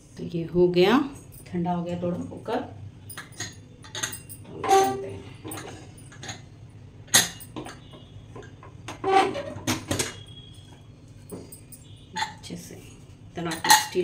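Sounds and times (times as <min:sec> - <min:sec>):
steel squeaking on steel: 0:04.5 - 0:05.5, 0:09.0 - 0:09.6.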